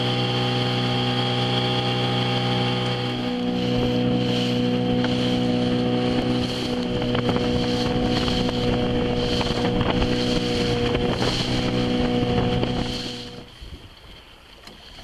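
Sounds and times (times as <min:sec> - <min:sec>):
boat motor running: 0:00.0 - 0:13.6
water rushing along hull: 0:00.0 - 0:15.0
wind across microphone: 0:02.8 - 0:14.2.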